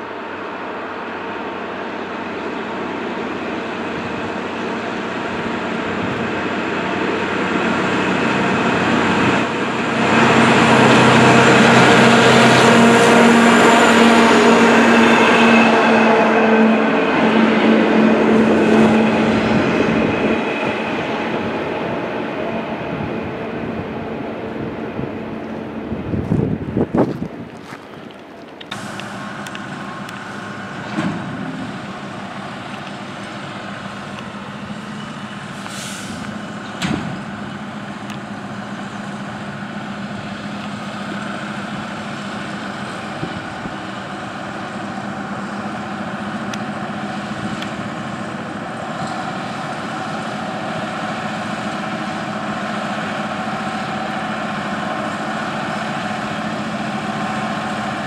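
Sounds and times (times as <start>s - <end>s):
diesel engine drone with whine: 0.0s - 58.0s
air hiss: 35.5s - 36.4s.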